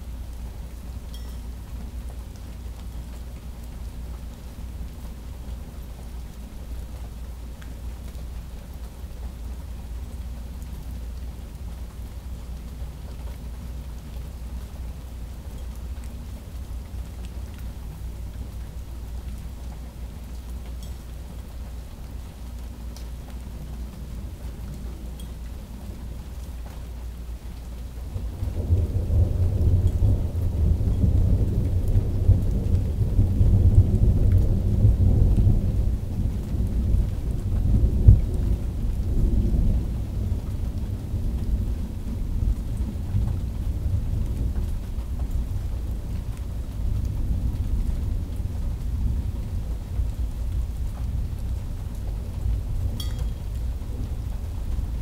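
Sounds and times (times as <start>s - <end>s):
steady rain: 0.0s - 55.0s
thunder rolling: 28.2s - 41.0s.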